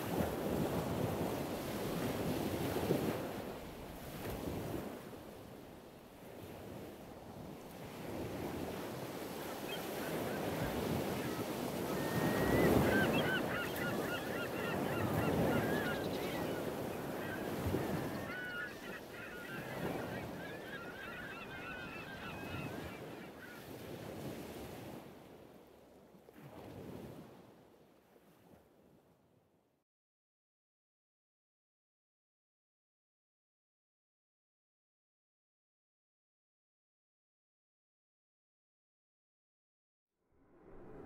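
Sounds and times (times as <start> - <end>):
surf: 0.0 - 25.3
birds honking: 9.6 - 23.7
wind rushing: 40.4 - 41.0.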